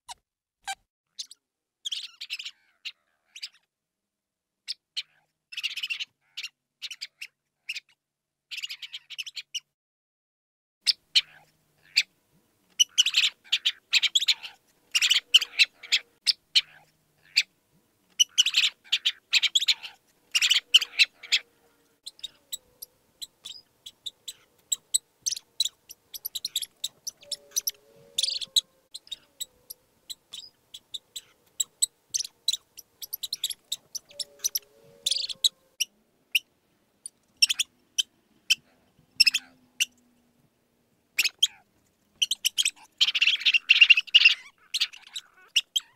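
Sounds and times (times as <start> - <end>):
mice squeaking: 0.1 - 3.6, 12.7 - 17.5, 18.1 - 40.0, 41.2 - 41.6, 42.2 - 45.9.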